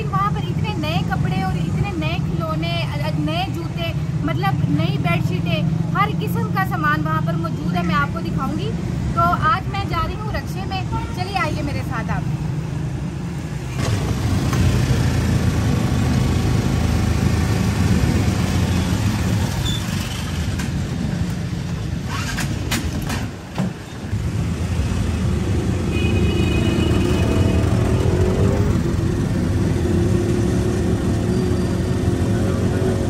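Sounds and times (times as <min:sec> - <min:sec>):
auto-rickshaw engine running: 0:11.6 - 0:33.0.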